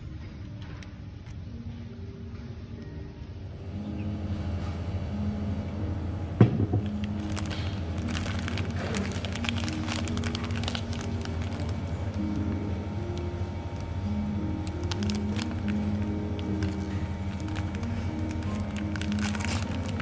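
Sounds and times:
background music with held notes: 0.0 - 20.0
plastic bread wrapper crinkling: 6.8 - 13.2, 14.6 - 20.0.

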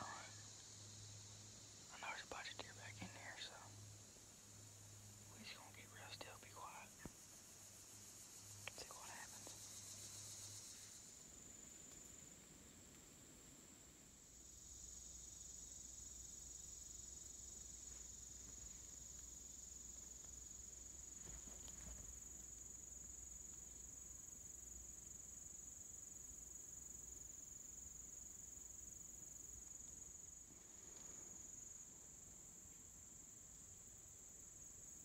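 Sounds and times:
insect chorus drone: 0.0 - 35.0
faint rustle: 17.6 - 24.0, 30.4 - 31.9.

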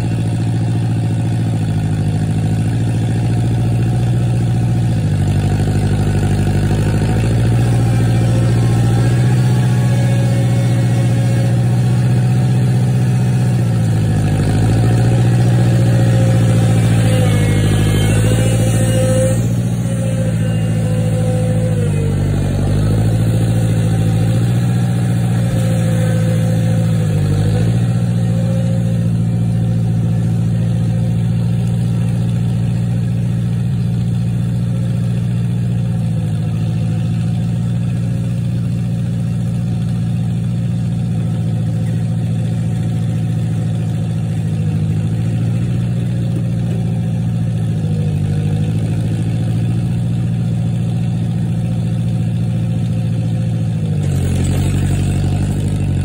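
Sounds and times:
tractor engine running: 0.0 - 56.0.

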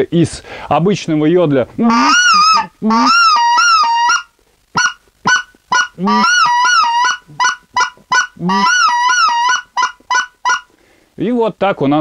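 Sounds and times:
goose call honks: 1.8 - 10.7
goose call clucks: 1.8 - 10.8.

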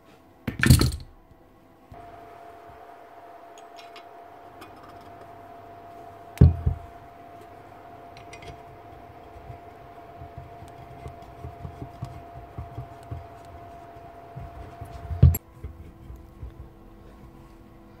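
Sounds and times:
faint steady hum: 0.0 - 18.0
metal parts knocking on bench: 0.5 - 1.1.

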